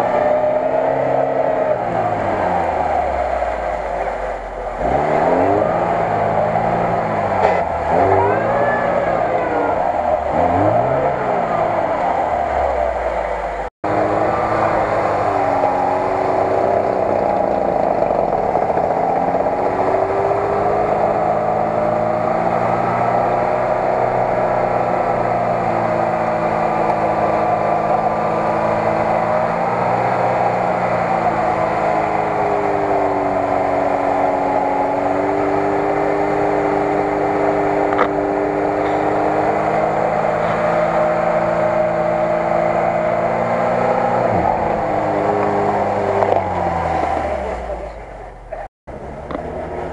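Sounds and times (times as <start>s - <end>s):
car engine working hard: 0.0s - 49.9s.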